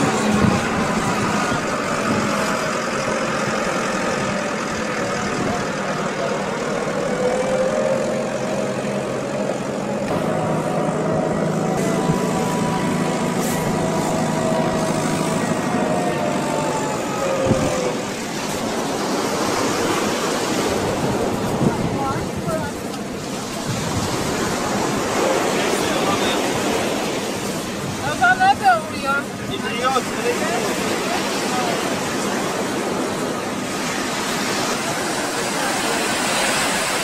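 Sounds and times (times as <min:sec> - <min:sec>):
car engine drone: 0:00.0 - 0:28.5
road noise: 0:00.0 - 0:37.0.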